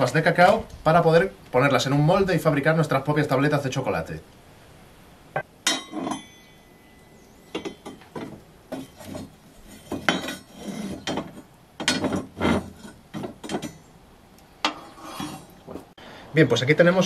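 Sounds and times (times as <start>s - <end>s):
iron tools clinking on tiled hearth: 5.6s - 13.9s.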